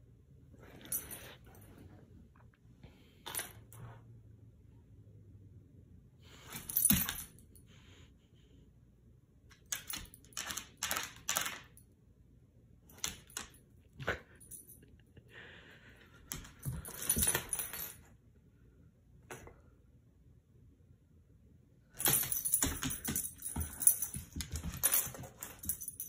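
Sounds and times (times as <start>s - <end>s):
dog collar tags jingling: 6.5s - 7.4s, 16.3s - 18.0s, 22.0s - 26.0s.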